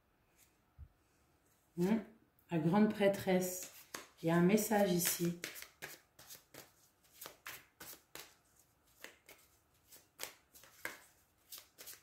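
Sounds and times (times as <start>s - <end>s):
cards being shuffled by hand: 3.6s - 12.0s.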